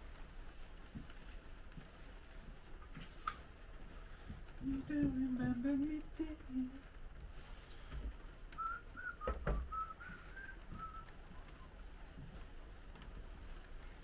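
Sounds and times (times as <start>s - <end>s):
man whistling a tune: 8.6s - 11.1s.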